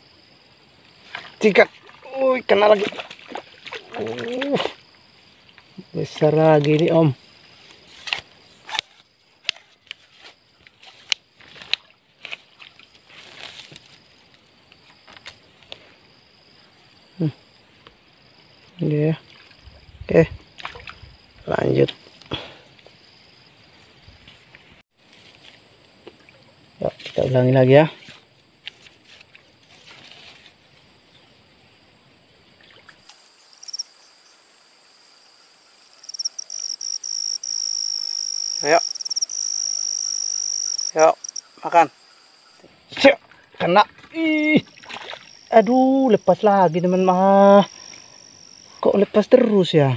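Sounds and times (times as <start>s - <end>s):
cricket chirping: 0.0s - 49.9s
insects droning: 0.0s - 49.9s
fishing pole clicks and taps: 8.8s - 10.0s
high-pitched insect drone: 33.1s - 43.1s.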